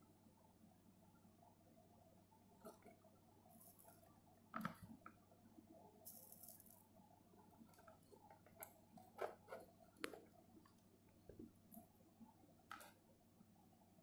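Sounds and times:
faint clicks and taps of soldering: 7.5 - 12.0, 12.6 - 13.1.

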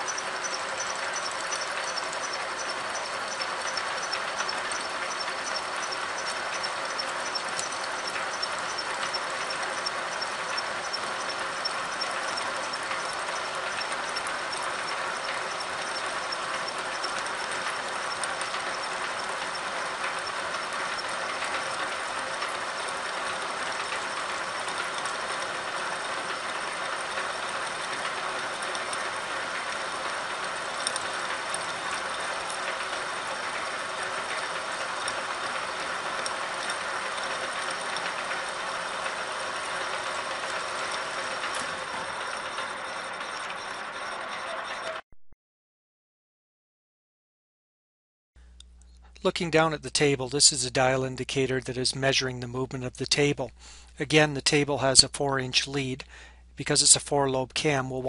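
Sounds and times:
milling machine whirring and whining: 0.0 - 45.0.

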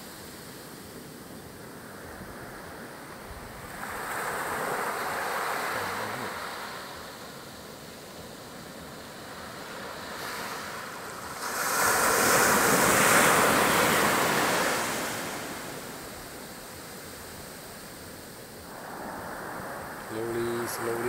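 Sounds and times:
surf hiss: 0.0 - 21.0
wave washing up sand: 1.8 - 21.0.

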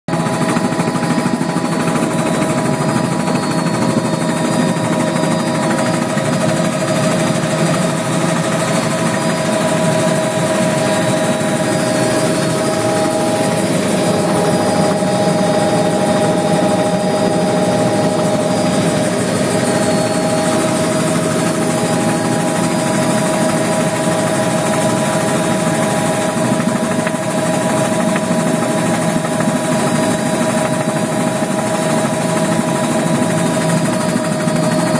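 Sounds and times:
helicopter engine and rotor drone: 0.1 - 34.9
steady whine: 0.2 - 26.6.

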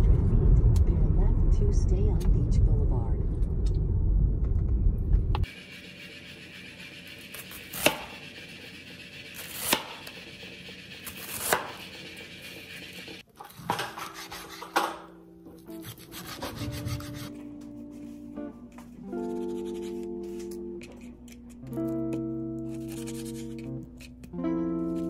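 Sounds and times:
knife slicing onion on board: 7.2 - 15.1, 15.7 - 17.4, 22.7 - 24.2.

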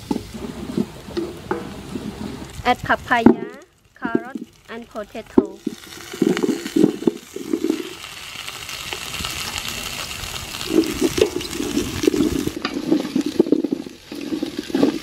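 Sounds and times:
wooden spoon scraping a pot: 0.0 - 2.6, 5.6 - 8.0
vegetables sizzling in oil: 0.0 - 15.0.

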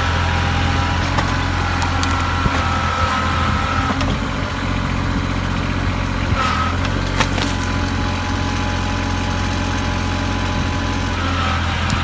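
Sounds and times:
loader working loose debris: 0.0 - 12.0
tractor engine running: 0.0 - 12.0.

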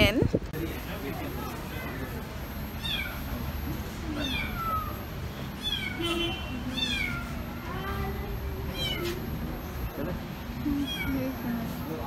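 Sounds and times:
kitten meowing: 2.8 - 3.1, 4.2 - 5.0, 5.6 - 7.3, 8.7 - 9.2, 10.8 - 11.3.

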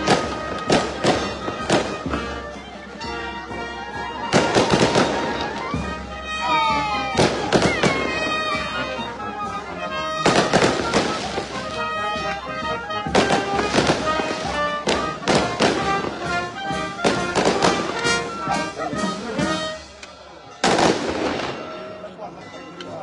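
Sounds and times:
firecracker bangs: 0.0 - 2.3, 4.3 - 5.6, 10.2 - 11.8, 13.0 - 19.8, 20.6 - 22.0
brass band music: 0.0 - 23.0.

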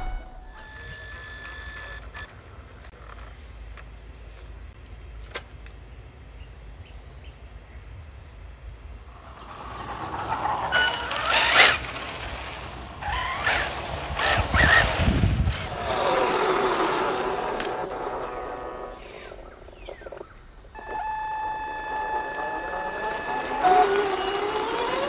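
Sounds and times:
electric motor whining: 10.4 - 12.0, 13.0 - 19.2, 20.8 - 25.0.

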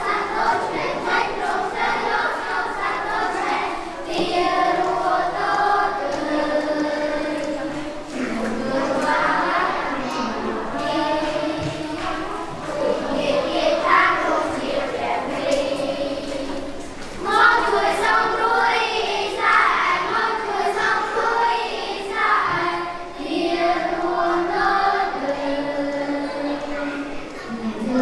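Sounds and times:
children's choir singing: 0.0 - 28.0.

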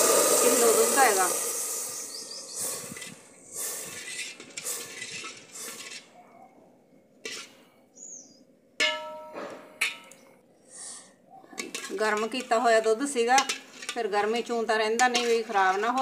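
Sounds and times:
ladle swishing in a pot: 2.6 - 6.1, 7.2 - 7.6, 11.6 - 16.0.

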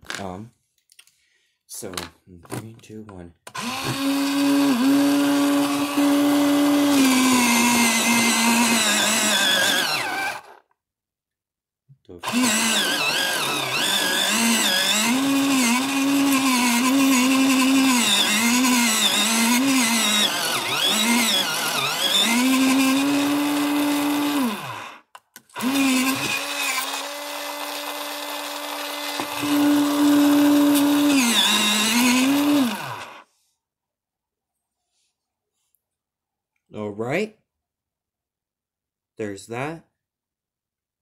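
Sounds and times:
electric pencil sharpener grinding: 3.5 - 10.7, 12.2 - 33.2.

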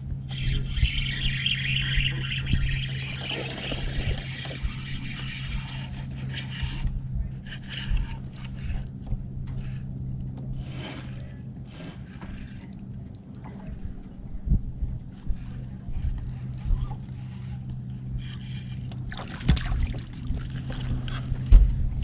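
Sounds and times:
steady low hum: 0.0 - 22.0
fishing reel rasping: 0.3 - 9.9, 10.6 - 14.2, 15.1 - 18.9.

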